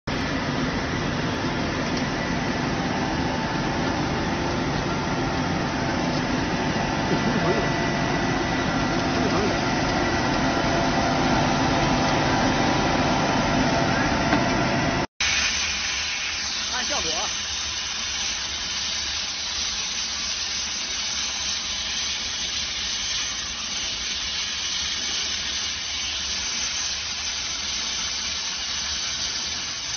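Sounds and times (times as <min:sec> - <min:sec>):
fire and blower rushing: 0:00.1 - 0:29.9
steady steam hiss: 0:03.6 - 0:09.7, 0:15.2 - 0:29.9.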